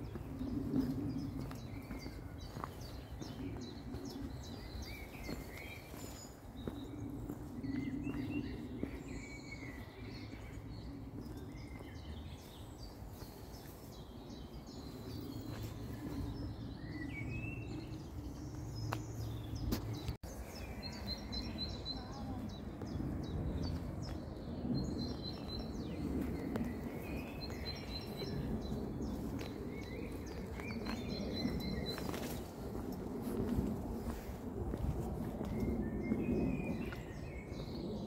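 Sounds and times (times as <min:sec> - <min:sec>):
small birds chirping: 0:00.0 - 0:38.0.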